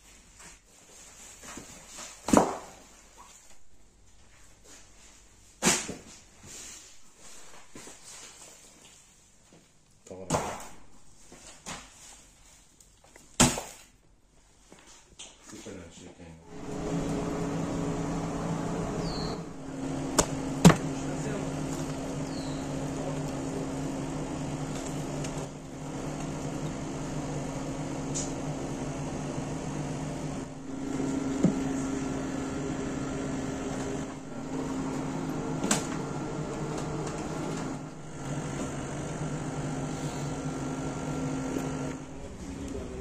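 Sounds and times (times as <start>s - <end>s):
low mechanical hum: 16.4s - 43.0s.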